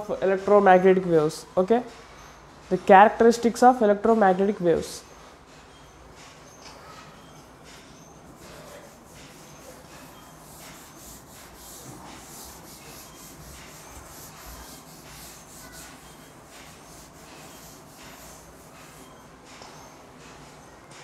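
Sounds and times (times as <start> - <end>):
eraser rubbing on chalkboard: 7.7 - 19.3.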